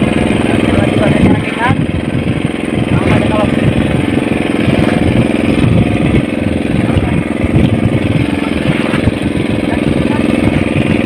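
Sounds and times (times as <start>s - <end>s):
loud boat engine running: 0.0s - 11.0s.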